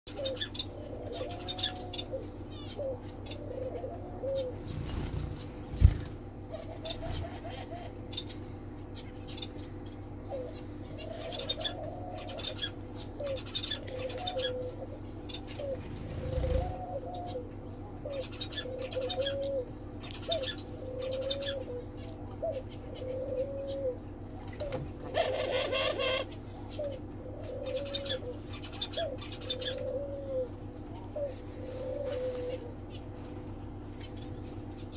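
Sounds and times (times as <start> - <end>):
finches chirping: 0.1 - 17.5, 18.1 - 21.8, 24.6 - 30.2
doves cooing: 0.1 - 34.9.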